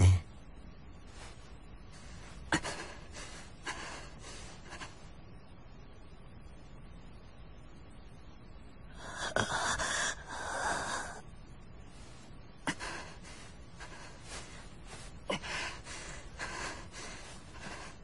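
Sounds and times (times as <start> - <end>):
man panting heavily: 2.0 - 5.0, 12.7 - 18.0.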